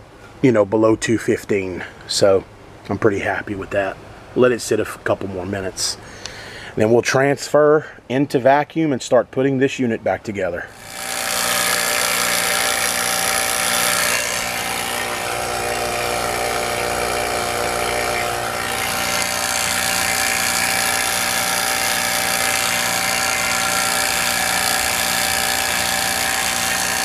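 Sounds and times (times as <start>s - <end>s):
vacuum pump running: 10.7s - 27.0s.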